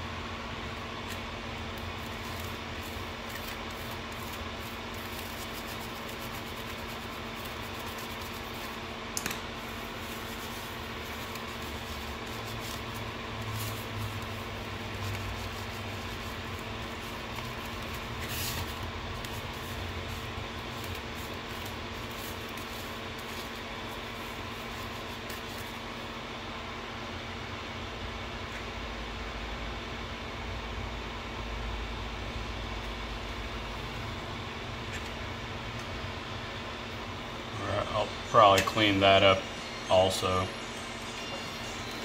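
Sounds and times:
steady hum and hiss: 0:00.0 - 0:42.0
tissue rubbing circuit board: 0:01.8 - 0:08.9, 0:09.6 - 0:25.8.

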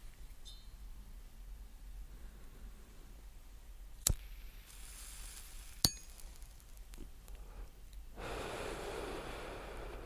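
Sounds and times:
faint lighter hiss: 0:04.0 - 0:10.0.

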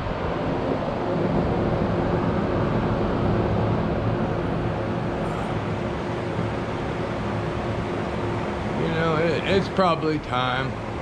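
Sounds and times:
rumble of noise: 0:00.0 - 0:11.0
steady mechanical hum: 0:00.0 - 0:11.0.

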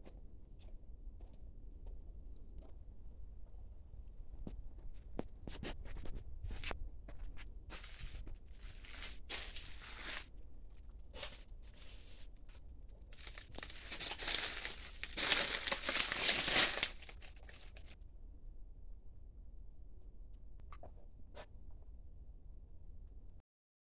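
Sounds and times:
dry leaves rustling and crinkling: 0:07.7 - 0:18.0.

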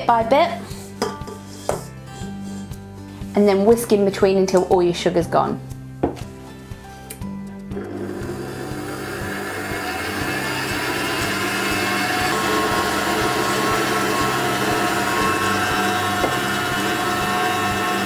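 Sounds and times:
stand mixer whisking: 0:07.8 - 0:18.0.

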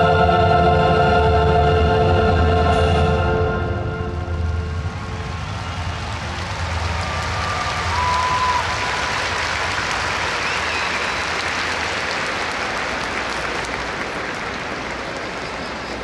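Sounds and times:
audience applauding: 0:04.8 - 0:16.0.

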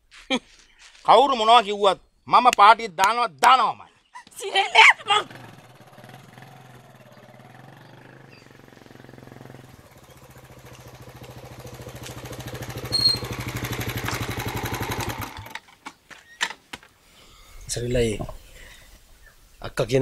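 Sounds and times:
motorcycle engine approaching: 0:05.0 - 0:15.8
high-pitched chirp: 0:07.1 - 0:09.6.

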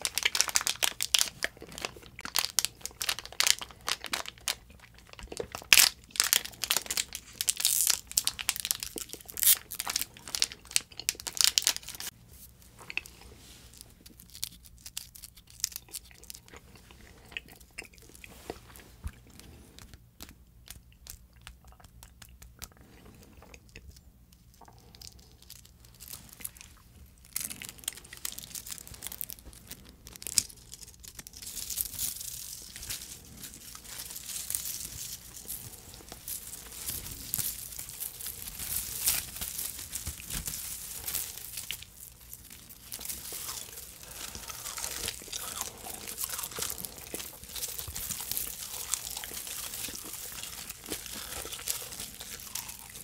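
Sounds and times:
film tape crinkling and tearing: 0:00.0 - 0:12.1, 0:14.1 - 0:16.4, 0:25.0 - 0:53.0.

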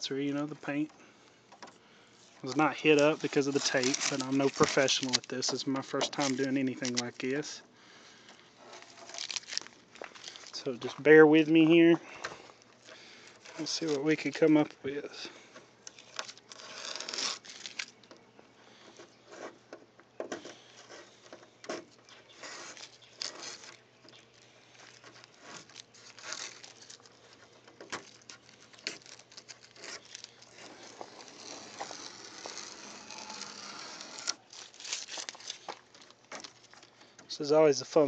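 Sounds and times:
tape crinkling in hand: 0:02.2 - 0:07.6, 0:08.2 - 0:18.8, 0:22.0 - 0:38.0
tape peeling and tearing: 0:02.4 - 0:07.4, 0:08.6 - 0:10.6, 0:15.8 - 0:18.2, 0:20.4 - 0:37.1.

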